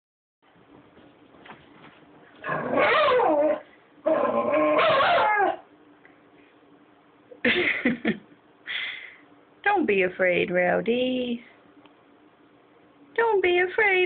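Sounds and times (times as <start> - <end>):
dog whining: 2.4 - 5.7.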